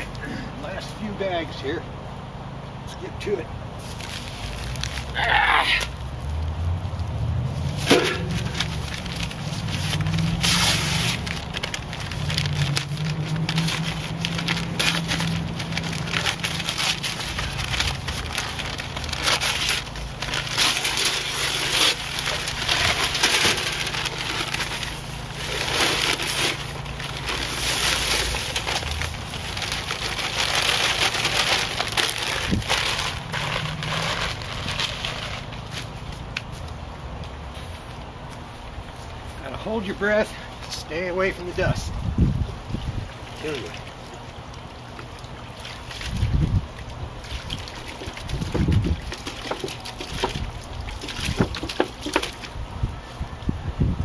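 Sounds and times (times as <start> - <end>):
paper bags crackling: 3.8 - 6.4, 7.6 - 36.6, 43.2 - 44.3, 44.9 - 52.6
dry concrete mix pouring: 7.6 - 35.8, 42.9 - 52.6.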